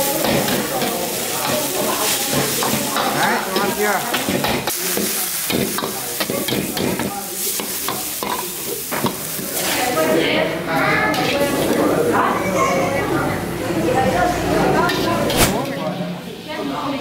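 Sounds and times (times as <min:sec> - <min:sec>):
food sizzling: 0:00.0 - 0:12.2.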